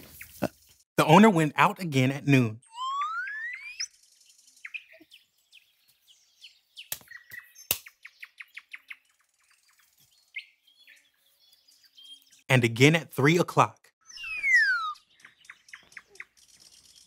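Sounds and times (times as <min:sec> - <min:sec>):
small birds chirping: 0:00.0 - 0:00.8, 0:02.6 - 0:12.6, 0:13.8 - 0:17.0
rising whistle glide: 0:02.7 - 0:03.9, 0:14.1 - 0:15.0.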